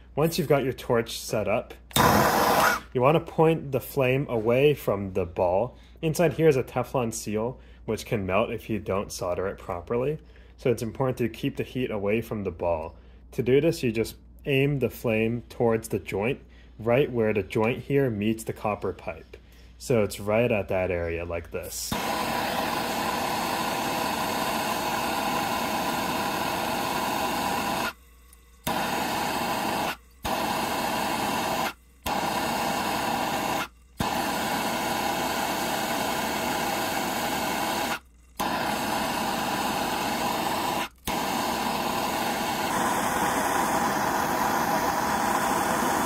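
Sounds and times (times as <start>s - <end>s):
torch flame hissing: 1.9s - 3.0s, 21.8s - 46.0s.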